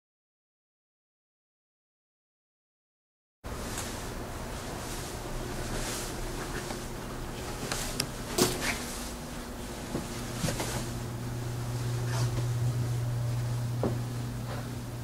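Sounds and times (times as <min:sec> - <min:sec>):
steady low hum: 0:03.5 - 0:15.0.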